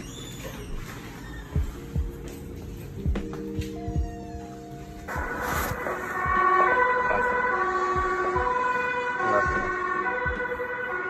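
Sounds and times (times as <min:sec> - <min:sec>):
emergency vehicle two-tone sirens: 0:06.0 - 0:11.0.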